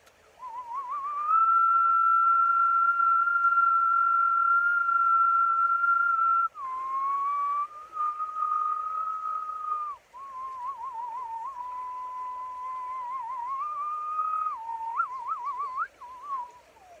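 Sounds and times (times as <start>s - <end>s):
man whistling: 0.4s - 17.0s.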